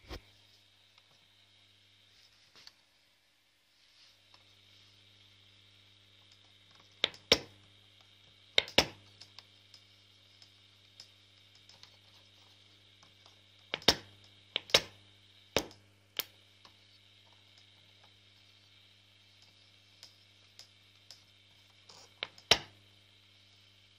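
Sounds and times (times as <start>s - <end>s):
faint high whine: 0.0s - 23.9s.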